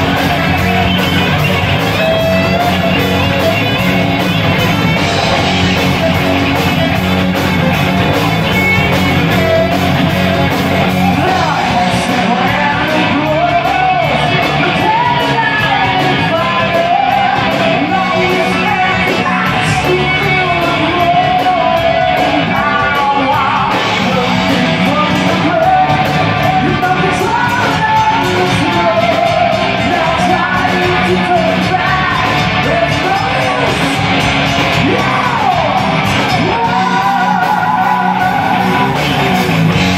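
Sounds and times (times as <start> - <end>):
rock band playing: 0.0 - 39.9
person singing and yelling: 8.3 - 39.8.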